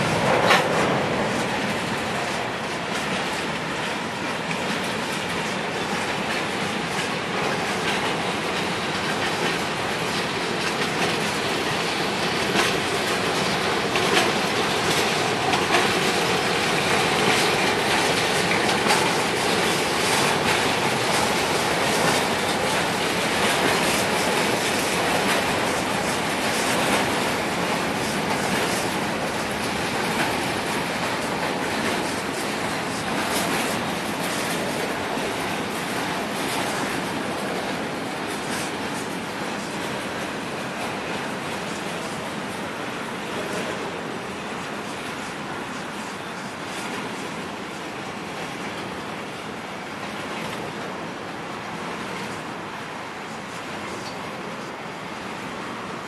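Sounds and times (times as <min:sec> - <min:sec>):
steel wheels rumbling on rail: 0:00.0 - 0:56.0
wheels clicking over rail joints: 0:00.0 - 0:56.0.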